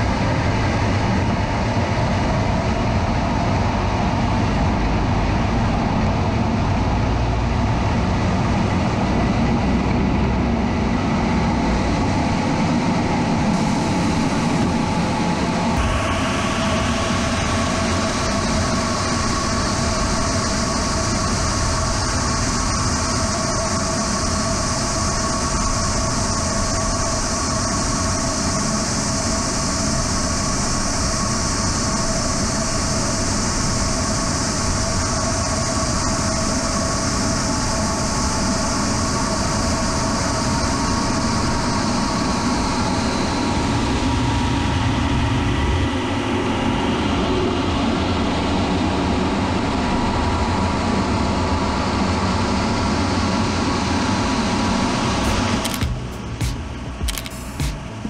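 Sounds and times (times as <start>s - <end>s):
rushing wind noise: 0.0s - 48.7s
turbojet engine whine: 0.0s - 58.0s.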